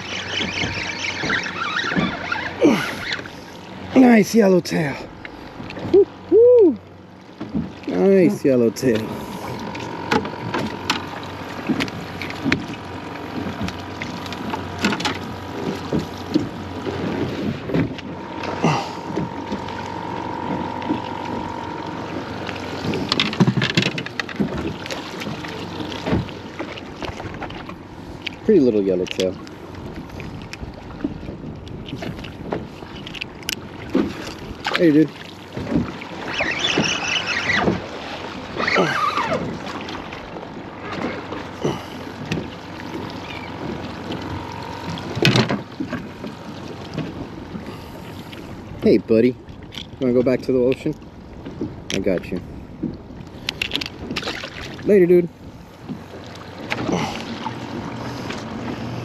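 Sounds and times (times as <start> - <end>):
water against boat: 0.0 - 59.0
wind: 0.0 - 59.0
fish slapping against hull: 8.8 - 47.7, 52.8 - 54.8, 55.8 - 58.9.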